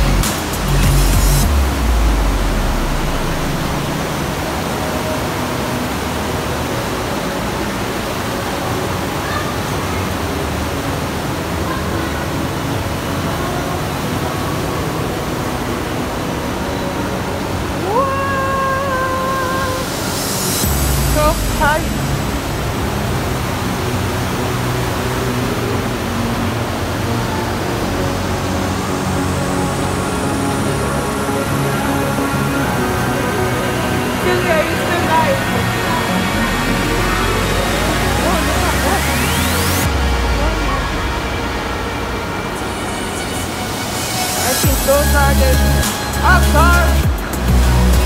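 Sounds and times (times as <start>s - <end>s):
underground waterfall rushing: 0.0s - 48.0s.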